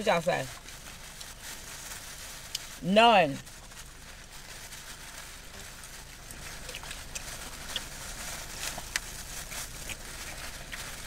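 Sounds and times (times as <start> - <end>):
wrapper handling: 0.0 - 11.0
chewing clicks and crackles: 5.5 - 11.0.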